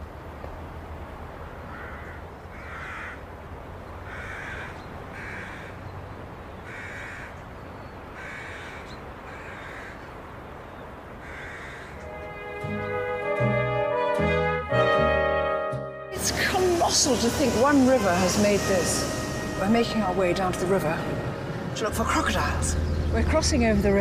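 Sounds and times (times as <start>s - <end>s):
crows cawing: 1.7s - 3.3s, 4.0s - 5.9s, 6.6s - 7.4s, 8.1s - 10.2s, 11.2s - 12.0s
low steady rumble: 16.2s - 24.0s.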